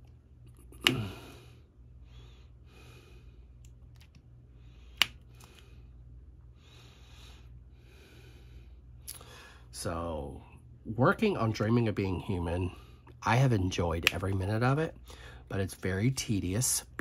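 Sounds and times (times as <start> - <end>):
steady low hum: 0.0 - 17.0
close breathing: 0.8 - 3.6, 4.5 - 9.7, 15.0 - 15.5.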